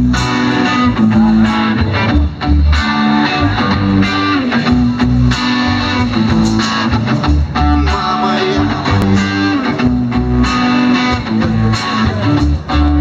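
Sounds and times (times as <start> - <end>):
bass line: 0.0 - 13.0
electric guitar: 0.0 - 13.0
steady drum beat: 4.7 - 13.0.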